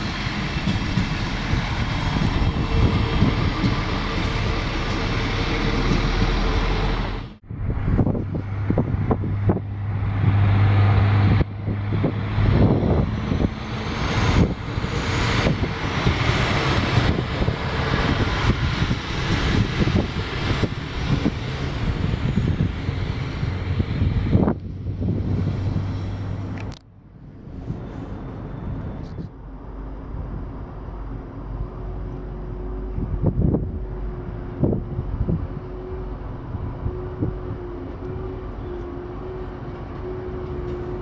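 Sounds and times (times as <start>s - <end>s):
diesel engine humming: 0.0s - 41.0s
steady rumble: 0.0s - 41.0s
wind on microphone: 7.4s - 26.7s, 31.5s - 41.0s.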